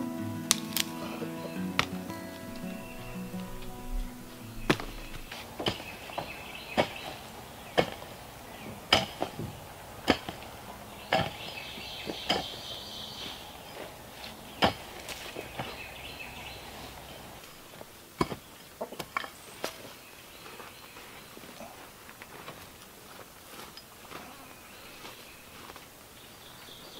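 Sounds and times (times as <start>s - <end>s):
mattock striking packed dirt: 0.0s - 16.6s
faint birds calling: 0.0s - 23.0s, 24.0s - 26.9s.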